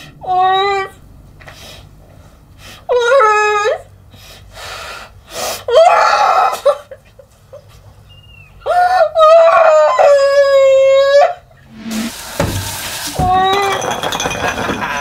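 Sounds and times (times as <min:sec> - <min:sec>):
sharp breaths: 0:04.1 - 0:05.7.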